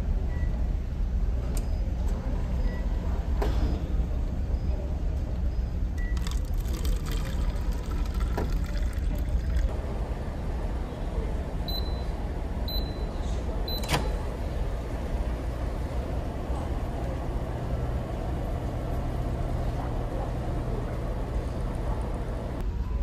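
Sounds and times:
microwave oven beeps: 0:00.3 - 0:00.6, 0:05.5 - 0:06.4, 0:11.7 - 0:14.2.

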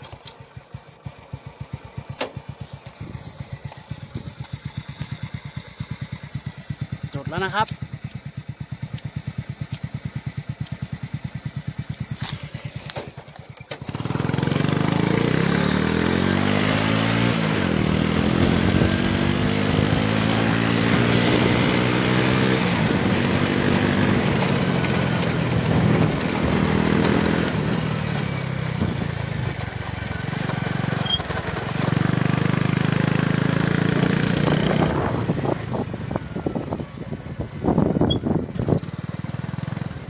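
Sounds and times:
motorcycle engine: 0:00.0 - 0:40.0
wind on microphone: 0:34.6 - 0:38.9.

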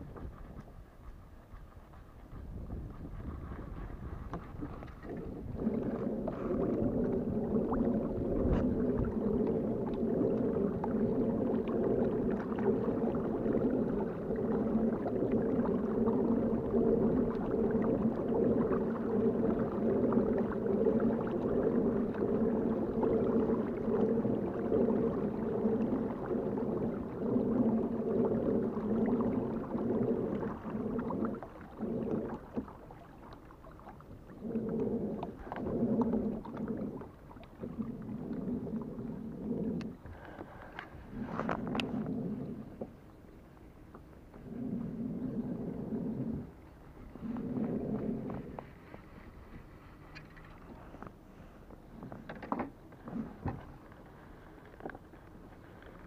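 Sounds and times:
kayak drive droning hum: 0:00.0 - 0:56.0
water against hull: 0:00.0 - 0:56.0.

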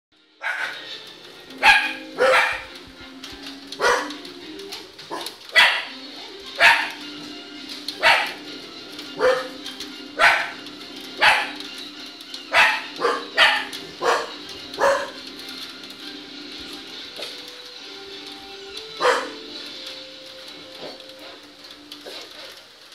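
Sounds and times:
small dog barking: 0:00.4 - 0:00.9, 0:01.6 - 0:02.8, 0:03.8 - 0:04.2, 0:05.1 - 0:06.0, 0:06.6 - 0:07.0, 0:08.0 - 0:08.5, 0:09.2 - 0:09.6, 0:10.2 - 0:10.6, 0:11.2 - 0:11.7, 0:12.5 - 0:15.2, 0:19.0 - 0:19.5.

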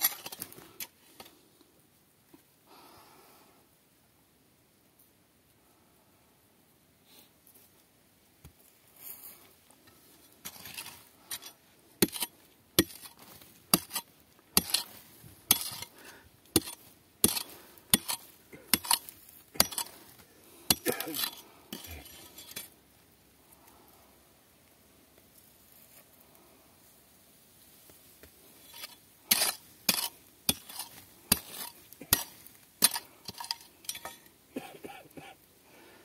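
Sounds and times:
hammer clinking on rock: 0:16.6 - 0:20.0, 0:28.8 - 0:34.3.

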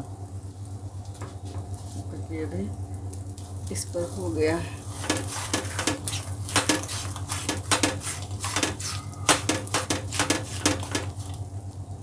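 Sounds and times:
frying pan clattering on stove: 0:05.0 - 0:11.3.

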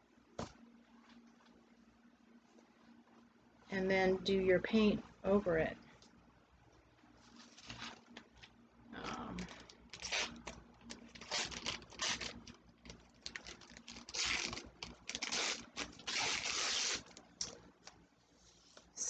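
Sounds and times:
paper rustling and crinkling: 0:07.2 - 0:08.5, 0:09.1 - 0:17.2
paper tearing: 0:11.1 - 0:12.5, 0:13.3 - 0:17.2.

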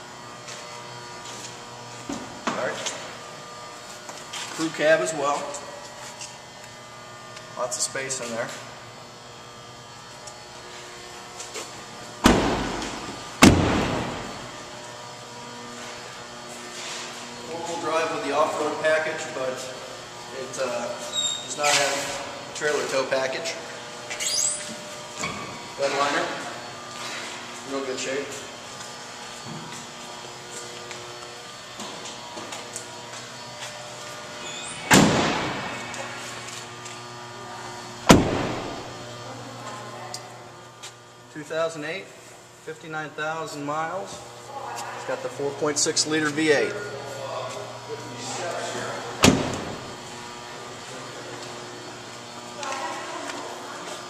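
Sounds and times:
truck doors slamming: 0:12.2 - 0:14.2, 0:34.9 - 0:35.7, 0:38.1 - 0:38.8, 0:49.2 - 0:49.9.

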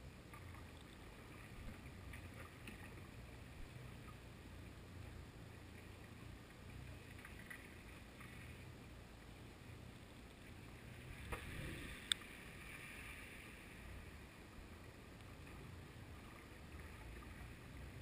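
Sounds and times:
muffled underwater rumble: 0:00.0 - 0:18.0
faint clicks: 0:11.2 - 0:12.4.

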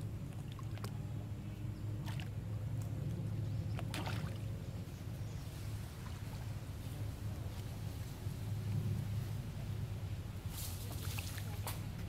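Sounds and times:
low engine hum: 0:00.0 - 0:12.0
monkeys splashing in water: 0:03.8 - 0:04.6.

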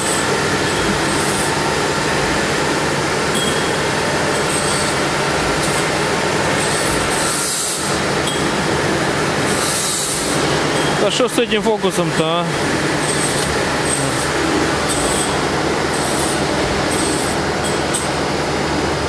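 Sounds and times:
machine rumbling and humming: 0:00.0 - 0:19.0.

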